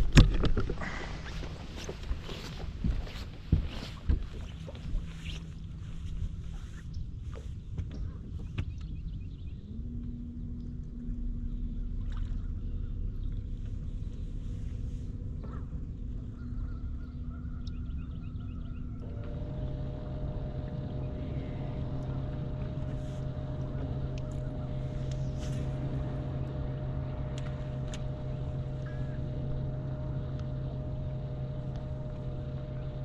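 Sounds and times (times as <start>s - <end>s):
electric motor humming: 19.0s - 33.0s.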